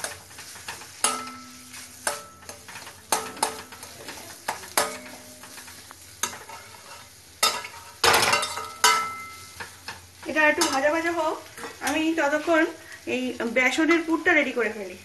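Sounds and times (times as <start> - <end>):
metal spatula scraping a pan: 0.0 - 12.8
soft frying sizzle: 0.0 - 15.0.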